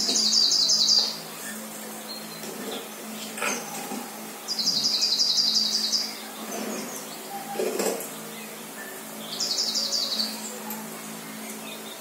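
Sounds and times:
songbird trill through speakers: 4.5 - 12.0.

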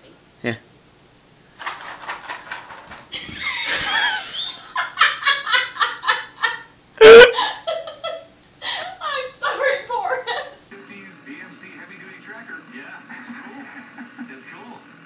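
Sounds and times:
people laughing hard: 3.2 - 8.2, 13.0 - 15.0.

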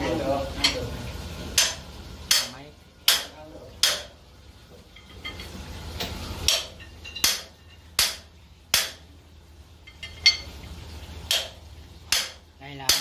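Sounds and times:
low steady hum: 0.0 - 13.0
hammer striking metal: 1.6 - 4.2, 6.5 - 9.1, 11.3 - 13.0.

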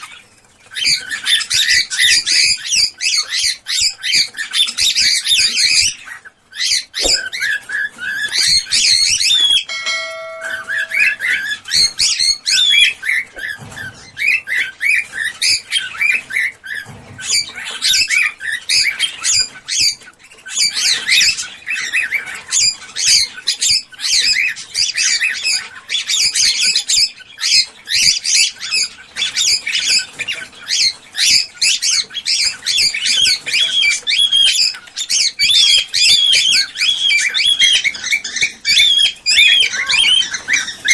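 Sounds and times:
cockatiels chirping and squawking: 0.0 - 40.9
whistle-like bird tone: 9.6 - 11.4.

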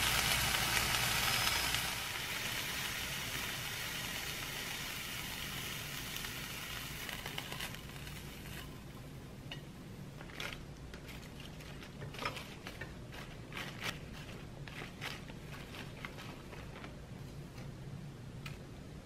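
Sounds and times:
frying pan sizzle: 0.0 - 16.8
lettuce leaves rustling: 10.2 - 17.0.

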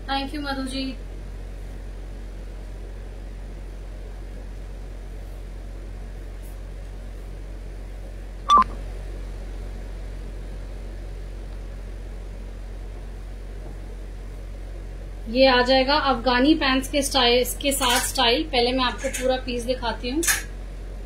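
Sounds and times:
low electrical hum: 0.0 - 21.0
short electronic beep: 8.5 - 8.7.

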